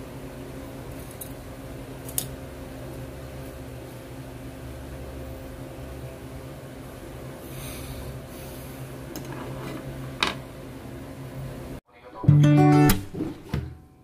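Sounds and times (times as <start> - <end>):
low background hum: 0.0 - 12.6
acoustic guitar music: 12.0 - 13.5.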